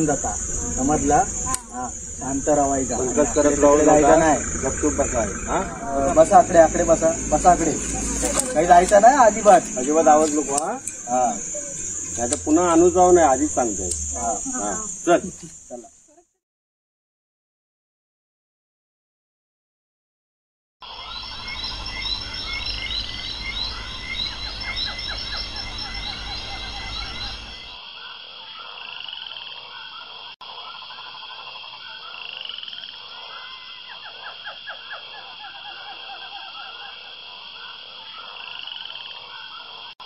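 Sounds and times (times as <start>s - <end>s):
low rumble: 0.0s - 14.9s
high trilling: 0.0s - 15.7s
frogs croaking: 0.0s - 16.2s, 20.8s - 40.0s.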